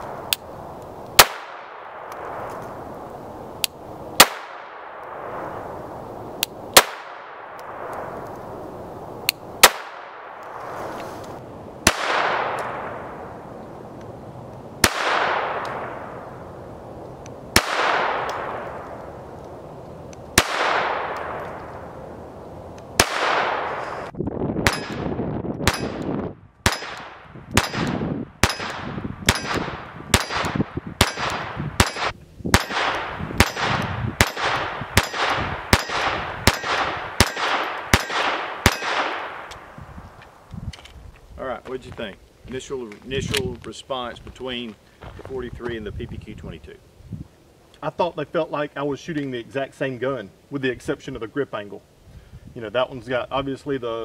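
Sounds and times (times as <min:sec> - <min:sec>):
pistol shots with ringing echo: 0:01.2 - 0:02.5, 0:04.2 - 0:05.4, 0:06.8 - 0:08.1, 0:09.6 - 0:10.4, 0:11.8 - 0:13.1, 0:14.8 - 0:16.2, 0:17.5 - 0:18.8, 0:20.4 - 0:21.8, 0:23.0 - 0:23.8, 0:24.6 - 0:39.7.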